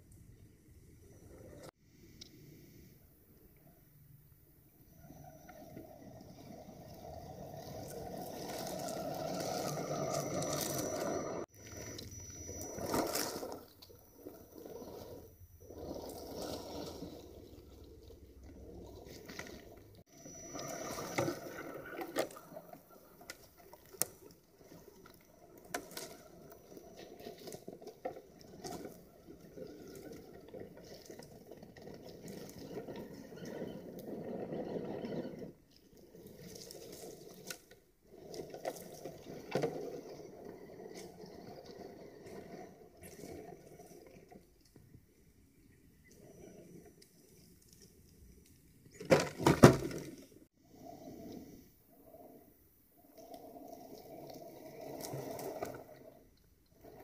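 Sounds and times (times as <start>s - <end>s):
toy car electric motor whining: 5.0s - 17.4s, 20.0s - 23.5s
tyres crackling over leaves and twigs: 7.7s - 14.0s.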